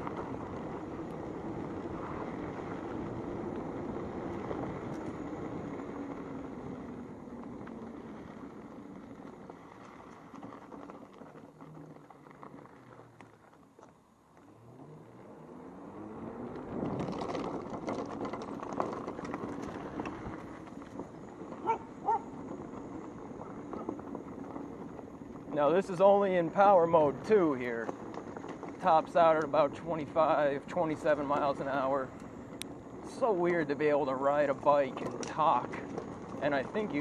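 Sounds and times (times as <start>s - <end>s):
wind noise: 0.0s - 11.4s
knocks and rattles over rough ground: 0.0s - 14.6s, 16.0s - 37.0s
tyre noise: 0.0s - 37.0s.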